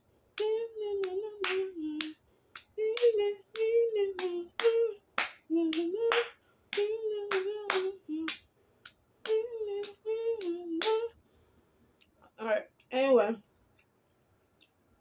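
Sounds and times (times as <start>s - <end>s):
person singing wordless notes: 0.4s - 2.1s, 2.8s - 6.2s, 6.8s - 8.4s, 9.3s - 11.1s
hand claps keeping a beat: 0.4s - 11.1s.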